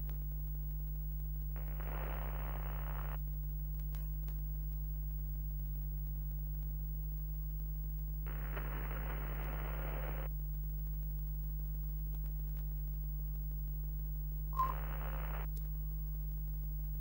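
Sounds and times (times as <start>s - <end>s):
low electrical hum: 0.0s - 17.0s
static hiss: 0.9s - 3.4s, 5.0s - 11.1s, 12.8s - 15.5s
brief beep: 14.6s - 15.0s.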